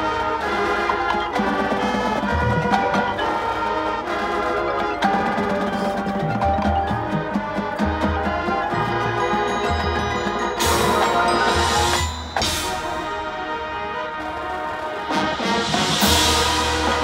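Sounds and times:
drums: 0:00.0 - 0:17.0
marching band playing: 0:00.0 - 0:17.0
deep low brass notes: 0:12.4 - 0:17.0.

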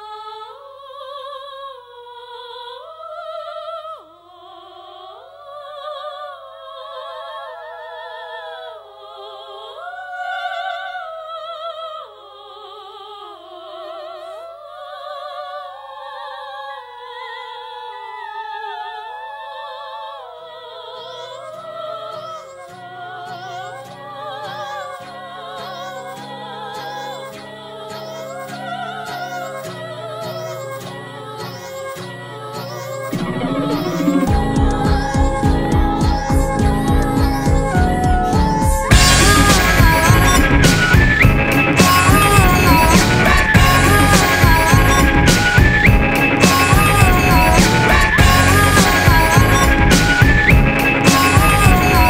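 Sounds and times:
operatic singing: 0:18.9 - 0:52.0
low musical accompaniment: 0:33.1 - 0:52.0.

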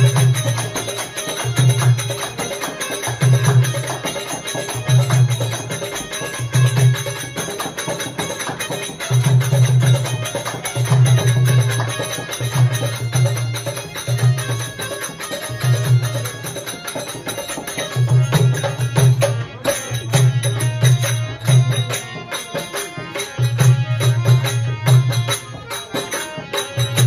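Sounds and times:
harmonium: 0:00.0 - 0:27.0
jingling hand percussion: 0:00.0 - 0:27.0.

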